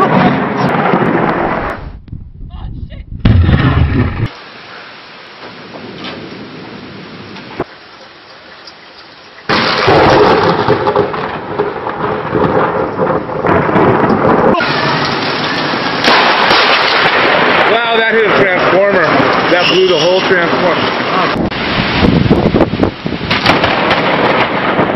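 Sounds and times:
thunder rumbling: 0:00.0 - 0:04.4, 0:09.5 - 0:24.9
rain hissing: 0:04.2 - 0:24.9.

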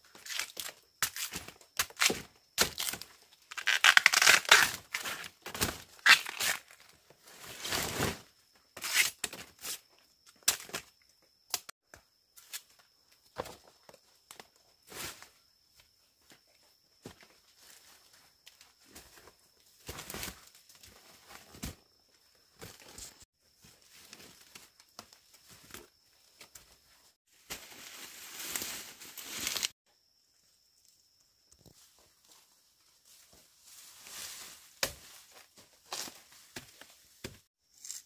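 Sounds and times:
leaves and stalks rustling: 0:22.7 - 0:29.8, 0:31.6 - 0:38.0.

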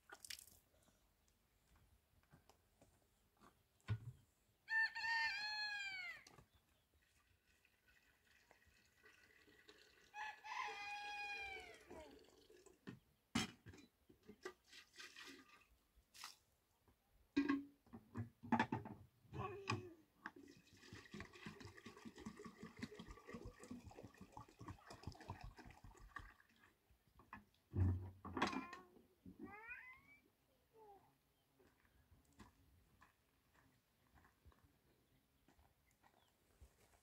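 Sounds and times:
rooster crowing: 0:04.7 - 0:06.2, 0:10.1 - 0:11.8.

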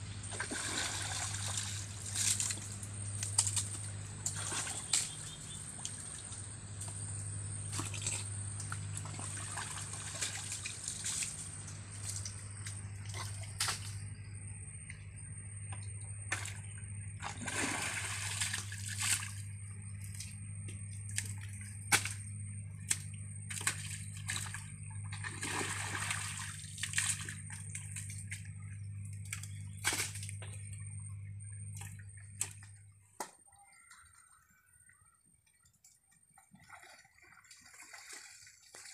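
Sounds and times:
steady low hum: 0:00.0 - 0:37.8
water splashing through ditch: 0:00.2 - 0:06.4, 0:07.7 - 0:12.4, 0:17.2 - 0:19.4, 0:22.9 - 0:28.3.

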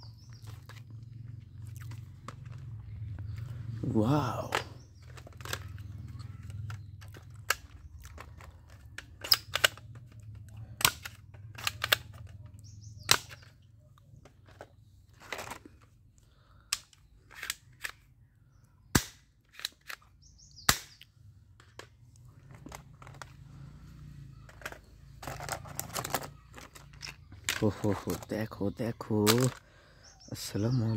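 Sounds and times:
plastic toy guns clacking: 0:04.4 - 0:13.6, 0:16.7 - 0:18.1, 0:18.9 - 0:21.0, 0:24.4 - 0:28.3, 0:29.2 - 0:29.6.

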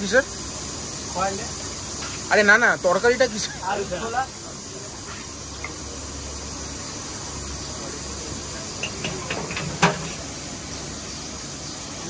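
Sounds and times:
steady hiss: 0:00.0 - 0:12.0.

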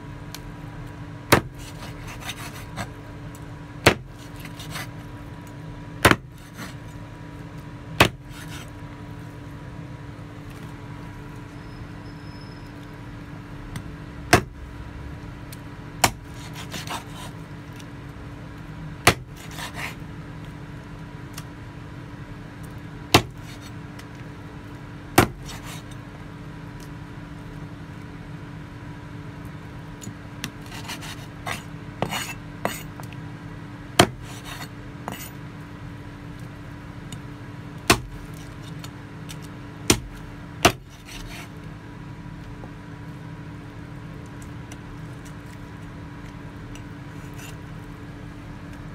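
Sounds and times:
cleaver chopping on wooden board: 0:01.3 - 0:02.9, 0:03.8 - 0:04.8, 0:06.0 - 0:06.7, 0:08.0 - 0:08.6, 0:13.8 - 0:14.6, 0:16.0 - 0:17.3, 0:19.0 - 0:19.9, 0:23.1 - 0:23.6, 0:25.2 - 0:25.8, 0:30.4 - 0:32.8, 0:34.0 - 0:35.3, 0:37.9 - 0:38.2, 0:39.9 - 0:41.4
scraping and rustling: 0:30.6 - 0:33.0, 0:34.2 - 0:35.4, 0:40.8 - 0:41.6.

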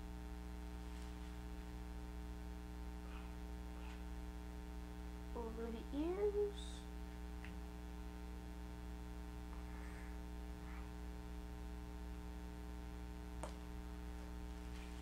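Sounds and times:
low electrical hum: 0:00.0 - 0:15.0
faint short rustles: 0:14.5 - 0:15.0.

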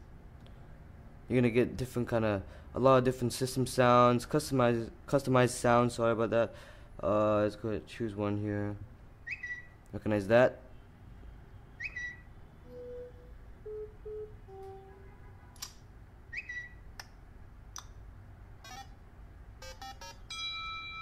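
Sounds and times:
rising chirp: 0:09.2 - 0:09.8, 0:11.8 - 0:14.6, 0:16.3 - 0:16.8
short low beeps: 0:11.8 - 0:15.2
sharp clicks: 0:15.6 - 0:15.8.

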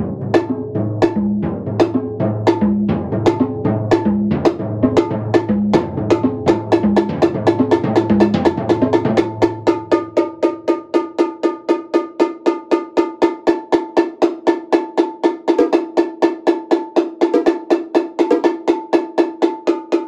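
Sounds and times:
low drum resonance: 0:00.0 - 0:10.6.

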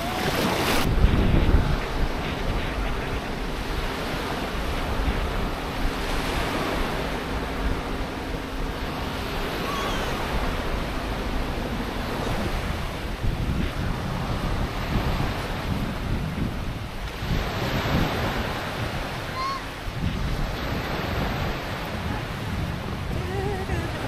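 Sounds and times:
small waves washing onto sand: 0:00.0 - 0:24.0
wind blowing over microphone: 0:00.0 - 0:24.0.

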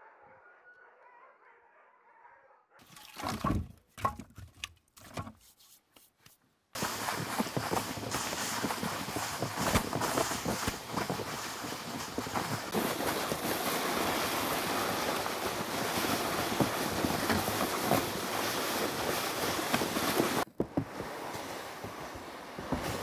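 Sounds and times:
footsteps crunching in snow: 0:06.8 - 0:23.0
sled rushing through snow: 0:06.8 - 0:23.0.

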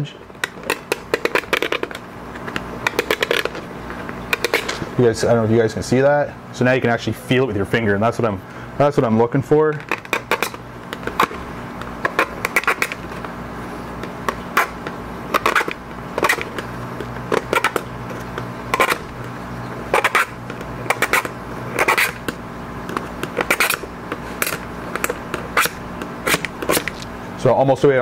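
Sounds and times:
screwdriver tip scraping a groove: 0:20.0 - 0:22.2, 0:23.0 - 0:27.0.

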